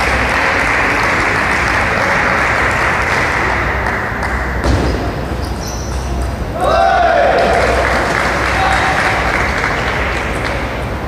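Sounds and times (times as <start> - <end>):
crowd applauding: 0.0 - 4.6, 6.8 - 11.0.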